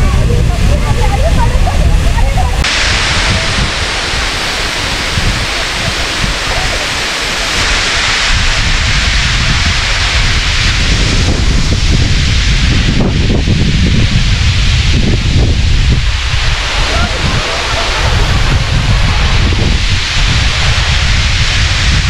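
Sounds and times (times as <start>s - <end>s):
water rushing over dam: 0.0s - 22.0s
wind rumble on microphone: 0.0s - 22.0s.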